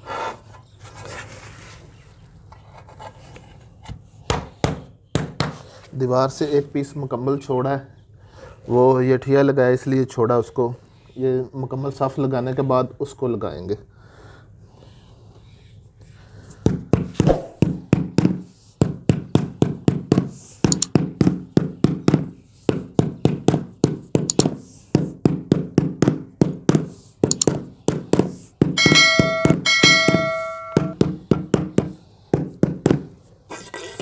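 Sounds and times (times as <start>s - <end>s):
rubber mallet knocking tile: 25.0s - 33.1s.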